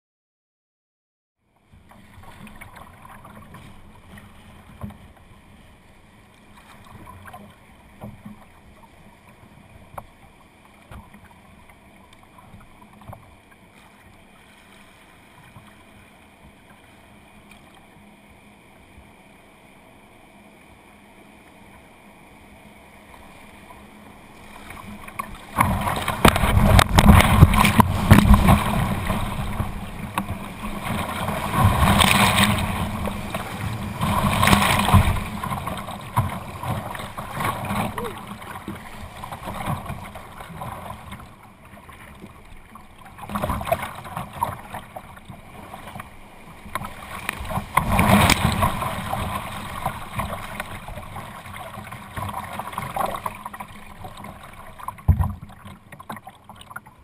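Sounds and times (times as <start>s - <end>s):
faint ticks: 6.3s - 14.7s, 15.4s - 18.1s
whitewater rushing and splashing: 24.4s - 41.2s, 45.6s - 54.7s.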